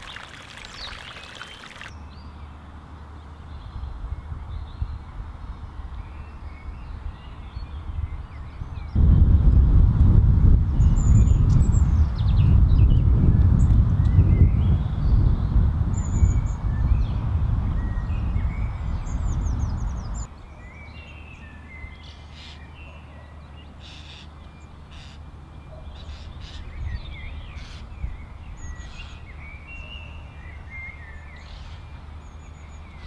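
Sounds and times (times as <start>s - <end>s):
birds chirping: 0.0s - 2.5s.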